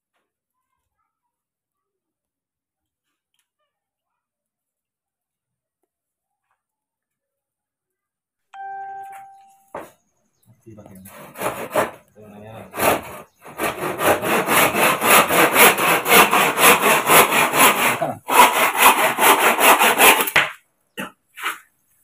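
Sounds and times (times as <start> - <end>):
handsaw cutting bamboo: 10.9 - 21.7.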